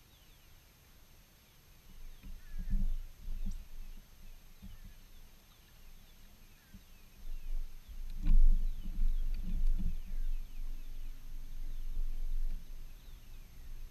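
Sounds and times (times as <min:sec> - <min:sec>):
birds chirping: 0:00.0 - 0:00.6, 0:01.4 - 0:13.9
low thumps and rumbles: 0:07.3 - 0:13.9.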